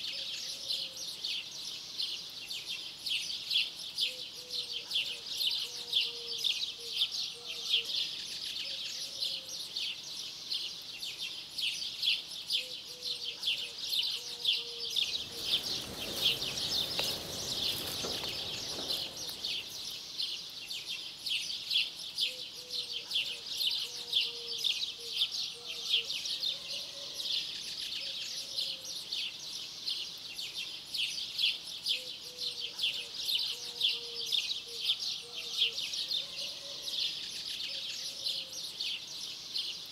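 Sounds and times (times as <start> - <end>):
small birds chirping: 0.0 - 39.9
soft rush of noise: 14.9 - 20.3.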